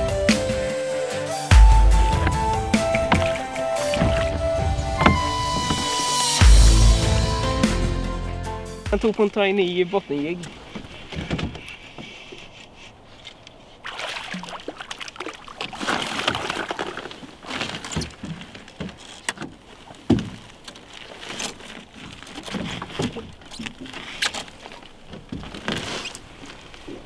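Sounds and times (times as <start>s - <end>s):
water splashing: 1.5s - 7.0s, 8.9s - 27.0s
handling rustles and knocks: 1.8s - 6.0s, 9.0s - 13.8s, 15.7s - 27.0s.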